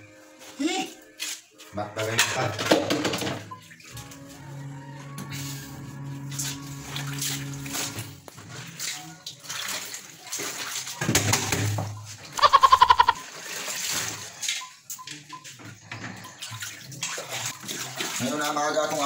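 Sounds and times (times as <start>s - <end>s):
water sloshing and splashing: 6.0s - 19.0s.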